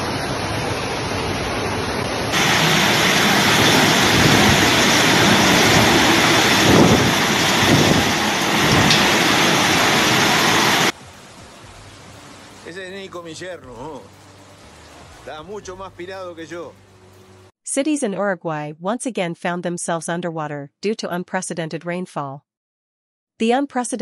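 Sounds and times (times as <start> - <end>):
heavy rain pouring: 0.0 - 16.8.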